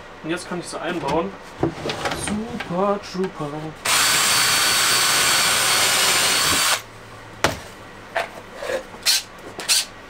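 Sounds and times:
cordless drill driving a screw: 0:03.9 - 0:06.8.

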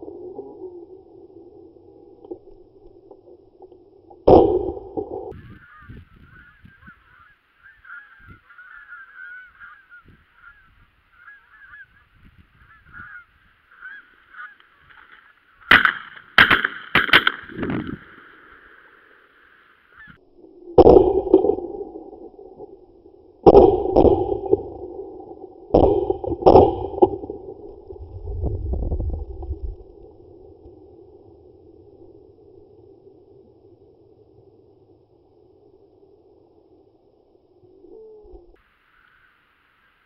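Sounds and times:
geese honking: 0:05.3 - 0:16.6, 0:19.9 - 0:20.2
sharp bangs: 0:15.7 - 0:18.0.

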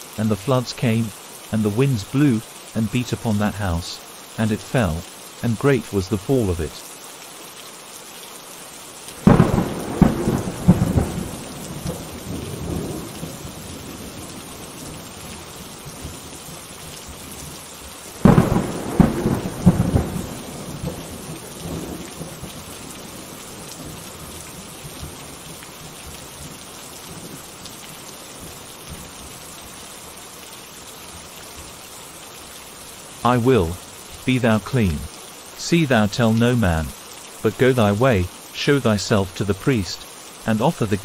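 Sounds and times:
steady rain: 0:00.0 - 0:41.0
rolling thunder: 0:09.2 - 0:14.0, 0:18.2 - 0:22.4.

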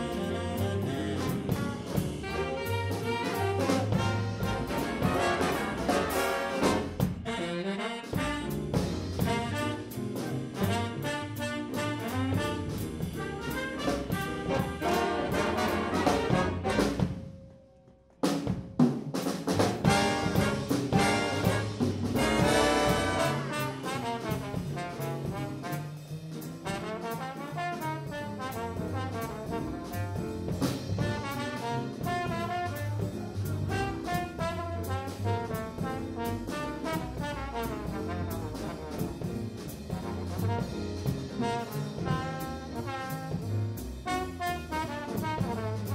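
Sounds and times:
jazz big band playing: 0:00.0 - 0:17.5, 0:18.2 - 0:45.9.

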